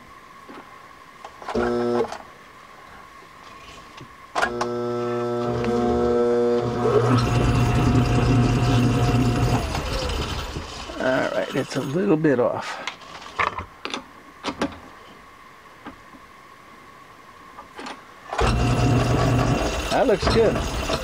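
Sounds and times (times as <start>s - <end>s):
rattling spindle drive: 4.4s - 12.0s, 18.3s - 21.0s
lathe motor humming: 4.5s - 11.2s, 18.4s - 21.0s.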